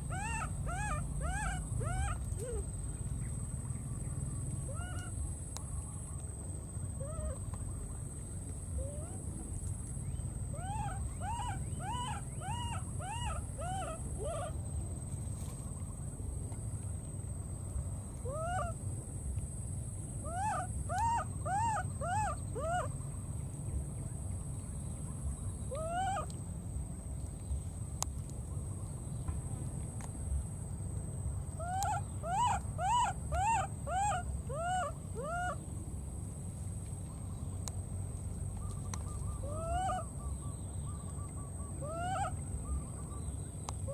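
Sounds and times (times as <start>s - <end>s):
baby monkey crying: 0.0s - 2.7s, 31.6s - 35.6s.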